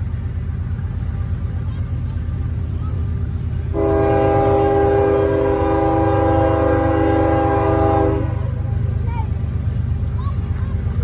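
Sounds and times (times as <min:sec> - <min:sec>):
low locomotive rumble: 0:00.0 - 0:11.0
locomotive air horn: 0:03.7 - 0:08.7.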